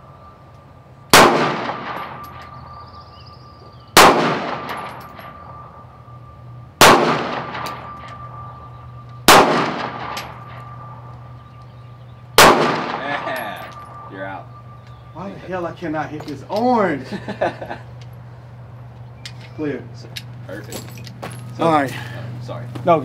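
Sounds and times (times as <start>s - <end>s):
pistol shots: 1.1s - 2.5s, 3.9s - 5.6s, 6.8s - 8.5s, 9.2s - 11.3s, 12.4s - 14.1s.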